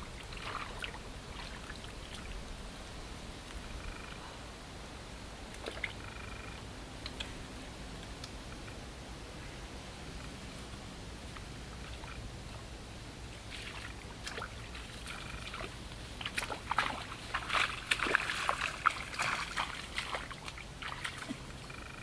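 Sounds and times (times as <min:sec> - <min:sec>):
shallow water splashing: 0:00.0 - 0:02.7, 0:13.4 - 0:21.7.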